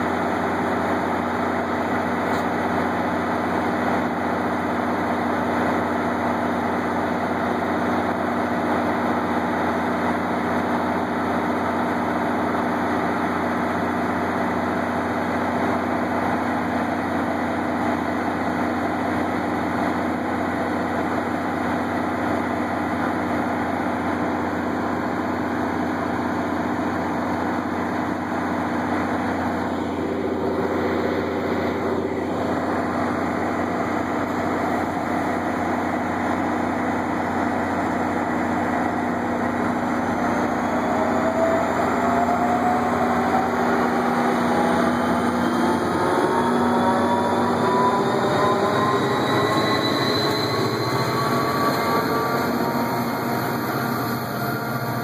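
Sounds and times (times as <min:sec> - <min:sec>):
diesel locomotive engine running: 0:00.0 - 0:55.0
whine climbing in pitch: 0:24.9 - 0:55.0.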